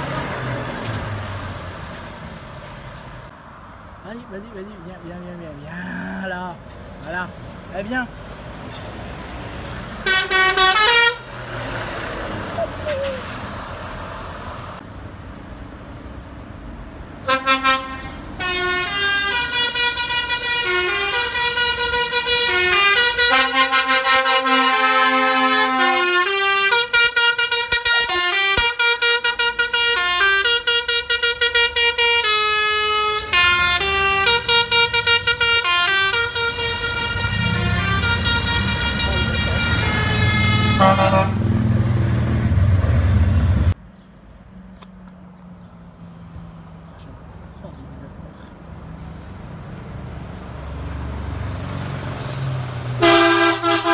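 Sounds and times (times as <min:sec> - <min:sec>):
diesel engine rumble: 0:00.0 - 0:53.9
musical air horn melody: 0:10.0 - 0:11.3, 0:17.2 - 0:41.5, 0:53.0 - 0:53.9.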